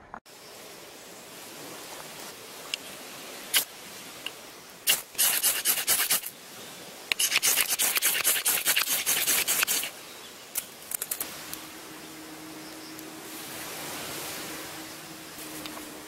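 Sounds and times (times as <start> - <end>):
ferro rod scraping: 7.2 - 9.9.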